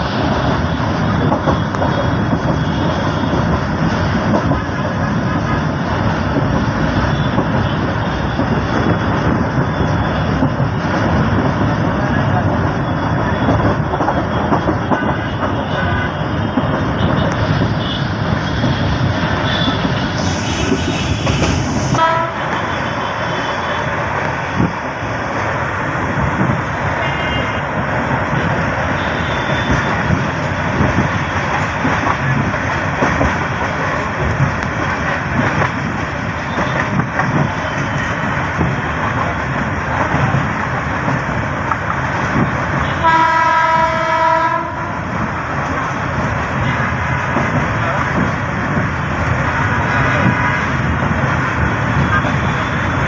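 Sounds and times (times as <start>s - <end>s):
train wheels rumbling on rails: 0.0s - 53.0s
train horn: 21.9s - 23.8s, 27.0s - 27.6s, 28.9s - 30.0s, 42.8s - 45.0s.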